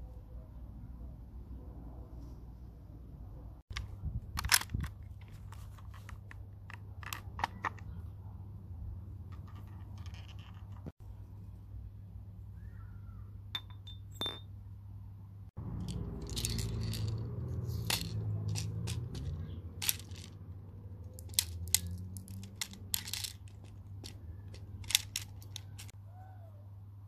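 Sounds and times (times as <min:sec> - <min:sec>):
magazine clicks and rattles: 0:03.7 - 0:07.8, 0:09.3 - 0:10.9, 0:15.8 - 0:17.2, 0:17.8 - 0:20.4, 0:21.1 - 0:25.9.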